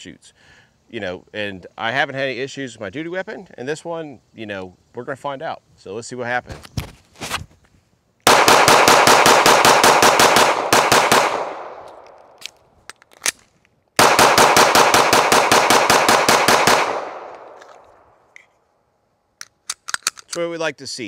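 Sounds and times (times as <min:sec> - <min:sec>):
pistol fire: 0:08.3 - 0:12.1, 0:14.0 - 0:17.6.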